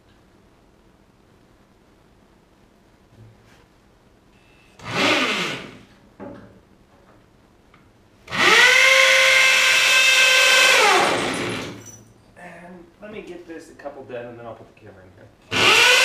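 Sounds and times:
hammer drill drilling into concrete: 4.8 - 5.8, 8.3 - 11.8, 15.5 - 16.0.

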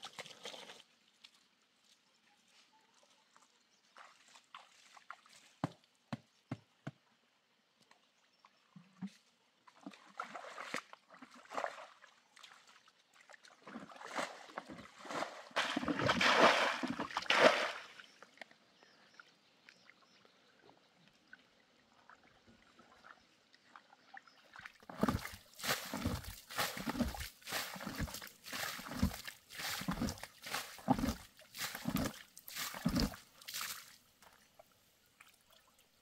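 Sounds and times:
muddy water sloshing and splashing: 0.0 - 1.4, 3.8 - 5.6, 9.0 - 18.5, 21.1 - 35.8.

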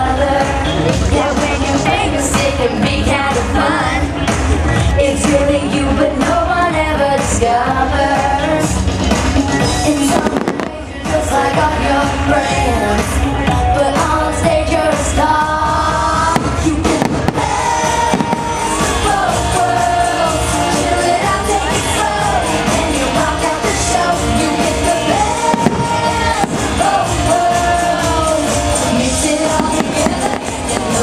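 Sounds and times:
song with singing voice: 0.0 - 31.0
fireworks bangs: 10.1 - 10.9, 16.3 - 18.7, 25.3 - 27.0, 29.5 - 31.0.

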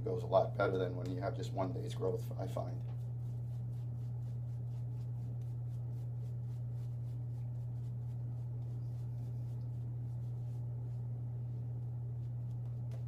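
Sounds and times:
steady low hum: 0.0 - 13.0
shaving brush scratching stubble: 2.6 - 13.0.

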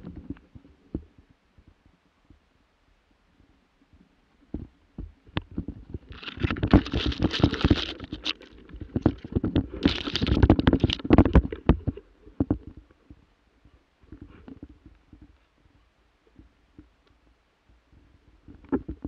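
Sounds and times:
rustling: 5.3 - 16.5
handling knocks and scrapes: 5.4 - 12.8.

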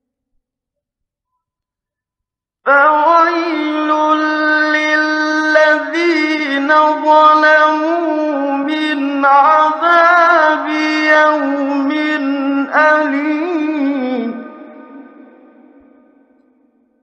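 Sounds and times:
man chanting recitation: 2.7 - 15.8.

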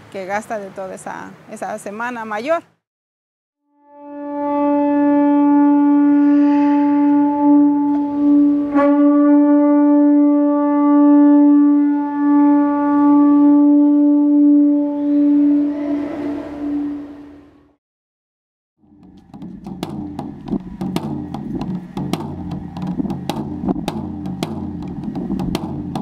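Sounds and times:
wind instrument long note: 3.8 - 17.8.

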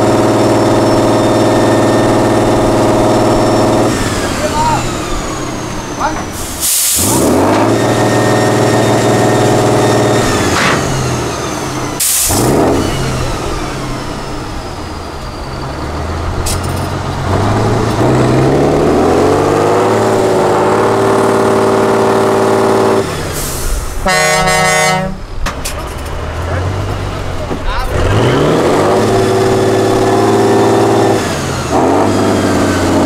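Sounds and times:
diesel truck engine revving: 0.0 - 33.0
air release hiss: 6.3 - 7.2, 12.0 - 12.4.

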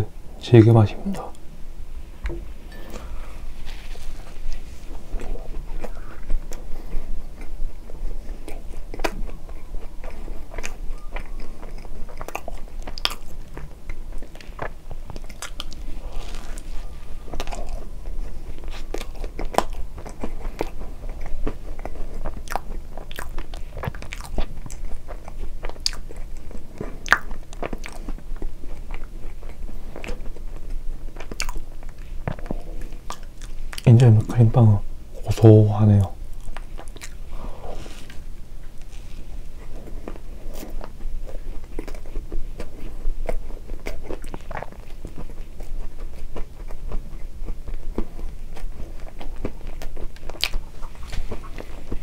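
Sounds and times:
person biting soft bread: 3.0 - 26.1
chewing close to microphone: 3.1 - 52.0.

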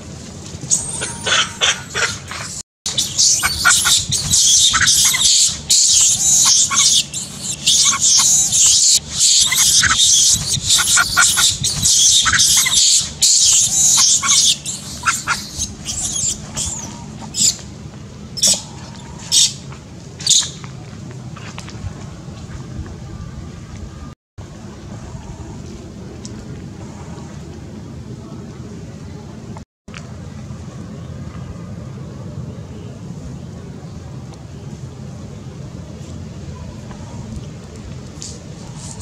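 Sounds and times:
monkey screaming: 0.7 - 17.6, 18.4 - 19.6.

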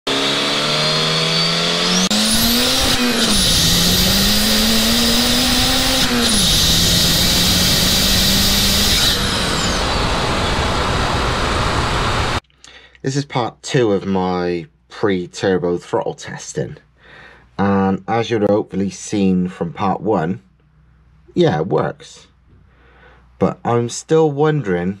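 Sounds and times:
car engine accelerating: 0.1 - 12.4.

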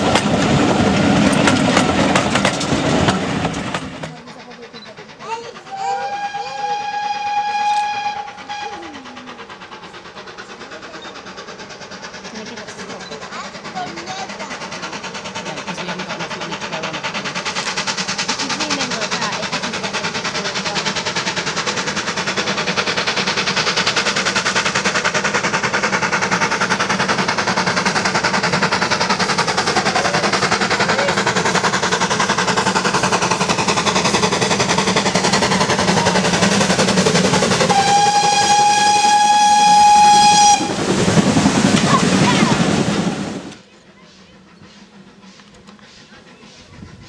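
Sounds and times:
steam locomotive exhaust beats: 0.0 - 47.0
steam whistle blast: 5.7 - 8.8, 37.7 - 40.8.

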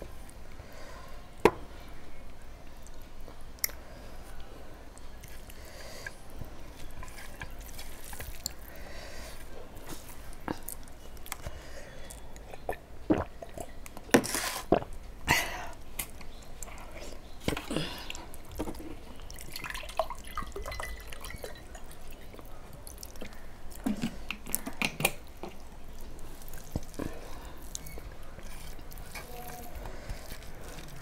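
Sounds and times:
hand mixing rice on steel plate: 24.0 - 31.0.

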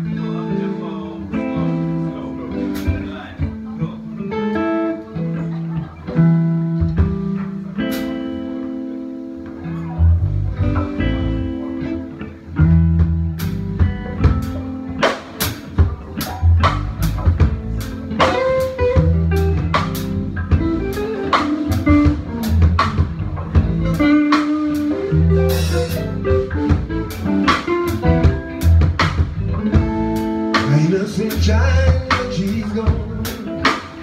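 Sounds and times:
electric guitar playing: 0.0 - 34.0
drum kit steady beat: 1.4 - 5.0, 5.7 - 34.0
deep bass notes: 9.6 - 34.0.

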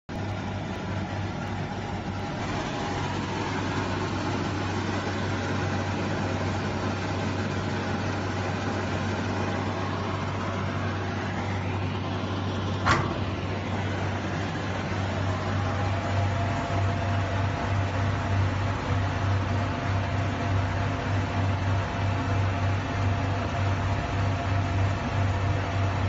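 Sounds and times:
machine hum and fan noise: 0.1 - 26.0
sharp click: 12.8 - 13.2.

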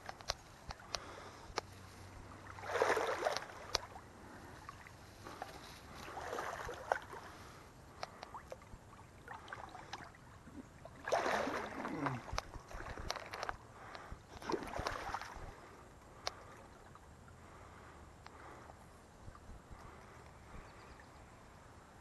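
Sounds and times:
small clicks: 0.0 - 1.7
water sloshing around wading legs: 0.0 - 17.4.

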